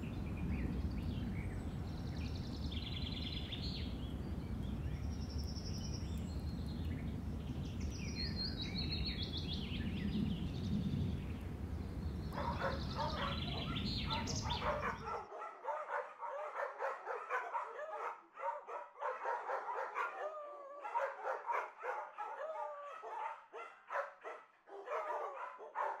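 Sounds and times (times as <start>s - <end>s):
wind rumble: 0.0s - 15.2s
birds chirping: 0.0s - 26.0s
dogs yipping and whimpering: 12.4s - 26.0s.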